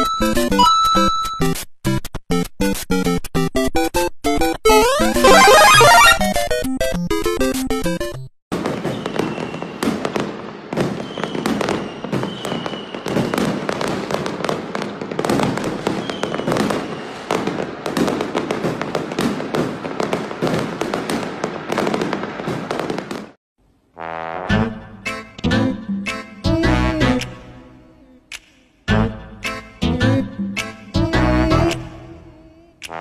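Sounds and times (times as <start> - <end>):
fireworks bangs and crackles: 8.5 - 23.4
firework whistles: 8.7 - 13.8, 15.6 - 17.4.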